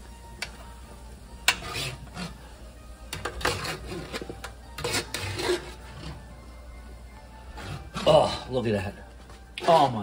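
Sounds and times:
metal tongs scraping a sheet pan: 1.5s - 2.4s, 3.2s - 6.2s.

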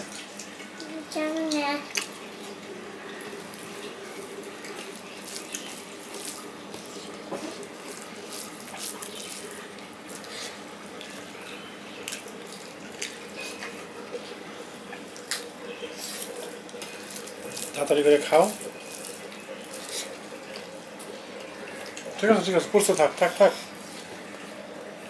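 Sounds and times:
wet chewing and lip-smacking: 1.5s - 2.6s, 3.2s - 17.8s.

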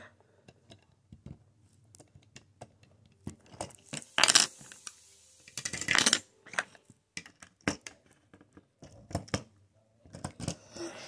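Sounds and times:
plastic pieces clicking: 5.5s - 10.6s.

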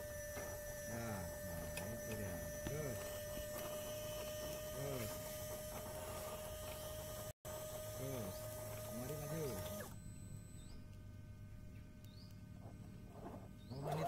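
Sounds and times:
rc truck motor whining: 0.0s - 11.0s
steady high hum: 0.0s - 14.0s.

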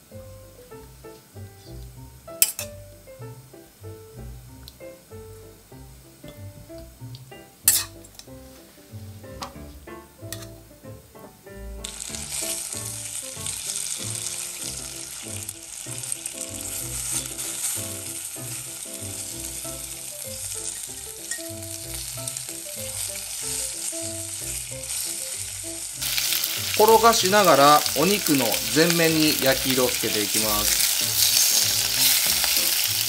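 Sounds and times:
soft background music: 0.0s - 33.0s
meat sizzling in oil: 7.0s - 8.1s, 11.8s - 33.0s.

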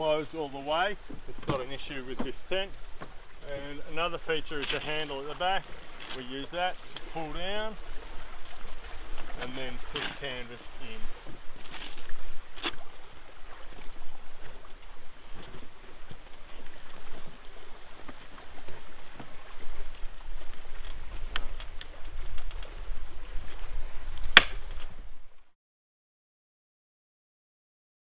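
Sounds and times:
wind rumble on microphone: 7.8s - 25.4s.

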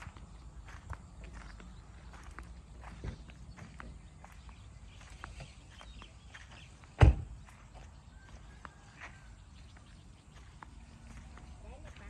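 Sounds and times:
faint outdoor ambience: 0.0s - 12.0s
loud thump: 7.0s - 7.3s.

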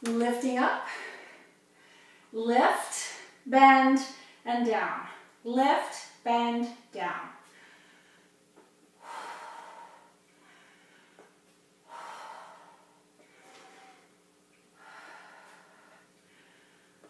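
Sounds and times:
faint steady hum: 0.0s - 17.0s
woman breathing hard: 0.8s - 2.3s, 7.5s - 8.4s, 9.0s - 17.0s.

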